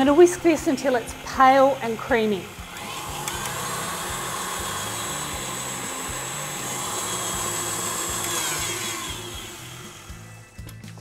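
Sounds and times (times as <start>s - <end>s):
whisk whirring through eggs: 0.0s - 10.4s
stand mixer motor whine: 0.0s - 10.5s.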